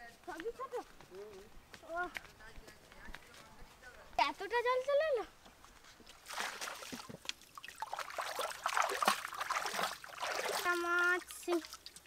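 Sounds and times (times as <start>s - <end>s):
water splashing and trickling: 4.6s - 12.0s.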